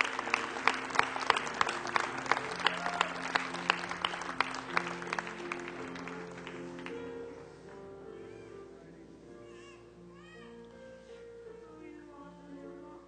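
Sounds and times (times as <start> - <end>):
congregation clapping: 0.0 - 7.1.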